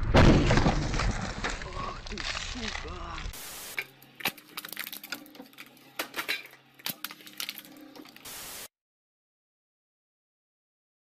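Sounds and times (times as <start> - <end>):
steady hiss: 3.3 - 3.9, 8.2 - 8.7.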